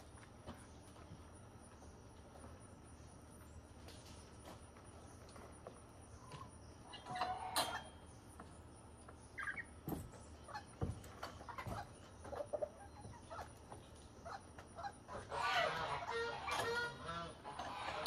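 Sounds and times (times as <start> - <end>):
hens clucking: 6.2 - 8.0, 9.0 - 9.8, 10.4 - 18.0
chicks peeping: 9.1 - 9.7.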